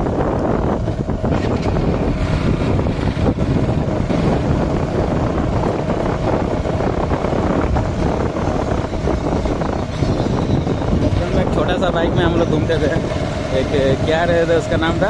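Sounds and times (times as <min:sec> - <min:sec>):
motorcycle engine running: 0:00.0 - 0:15.0
wind buffeting microphone: 0:00.0 - 0:15.0.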